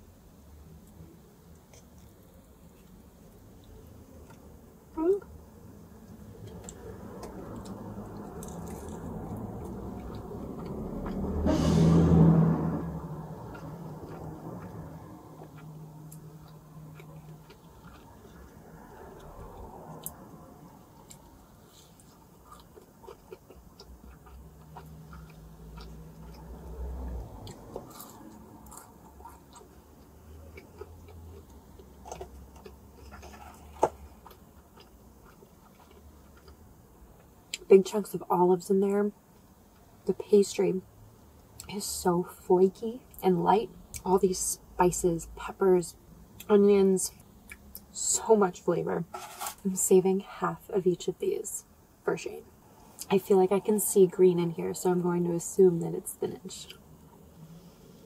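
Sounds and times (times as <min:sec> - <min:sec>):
chewing crunchy pastry: 0:00.8 - 0:04.5, 0:06.1 - 0:11.3, 0:13.2 - 0:37.7.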